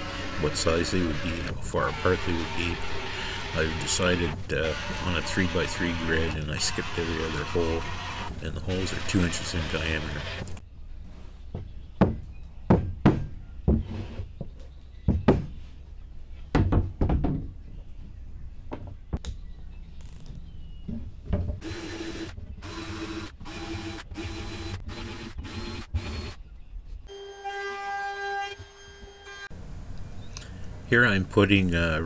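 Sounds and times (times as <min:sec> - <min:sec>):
cordless drill sanding: 0:00.0 - 0:10.6, 0:21.6 - 0:26.4
wooden knocks and thumps: 0:11.5 - 0:15.6, 0:16.5 - 0:17.8, 0:18.7 - 0:19.3, 0:20.8 - 0:21.6.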